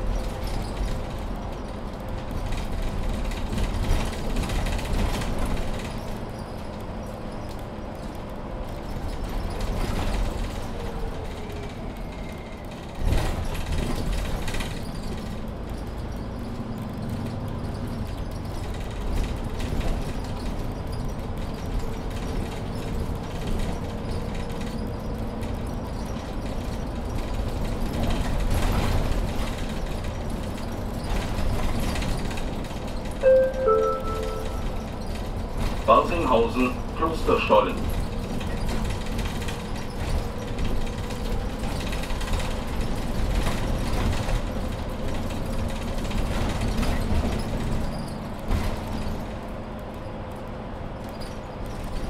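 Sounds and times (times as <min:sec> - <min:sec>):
bus engine running with rattles: 0:00.0 - 0:52.0
falling two-note chime: 0:33.2 - 0:34.8.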